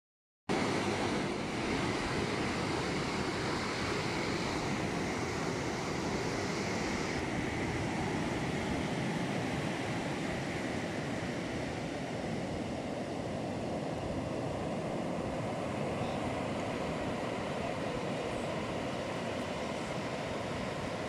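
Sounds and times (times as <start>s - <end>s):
ocean surf: 0.5s - 21.0s
wind: 0.5s - 21.0s
high hiss: 1.6s - 7.8s.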